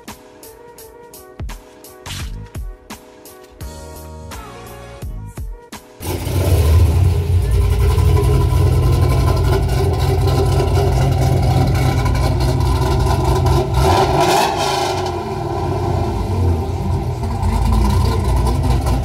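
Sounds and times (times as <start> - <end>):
car engine exhaust rumble: 6.0 - 19.0.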